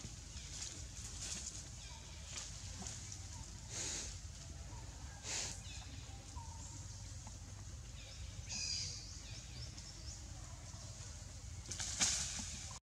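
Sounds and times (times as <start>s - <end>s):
leaves rustling: 0.0s - 4.6s, 10.8s - 12.8s
small birds chirping: 0.3s - 11.8s.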